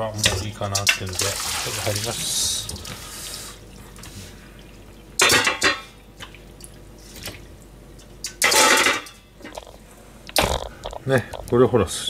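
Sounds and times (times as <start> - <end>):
water dripping: 0.2 - 8.4
metal pots and pans clanking: 5.2 - 6.0, 8.3 - 9.8.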